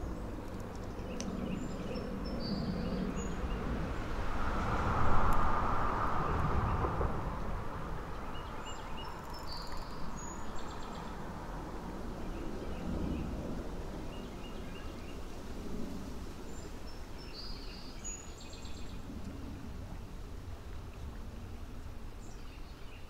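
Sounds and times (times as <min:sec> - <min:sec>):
steady low rumble: 0:00.0 - 0:09.4
broad rushing swell: 0:03.4 - 0:09.0.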